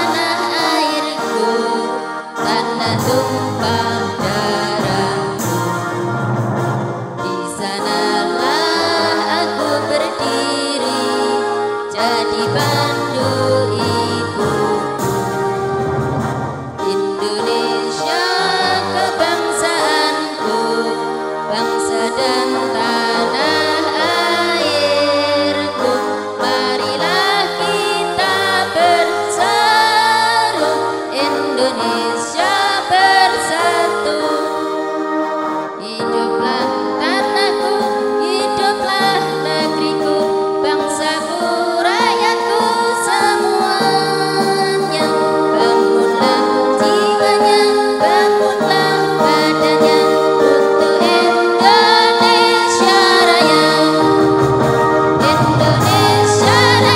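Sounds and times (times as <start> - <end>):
women's choir singing: 0.0 - 6.4, 7.0 - 56.9
electric keyboard chords: 0.0 - 56.9.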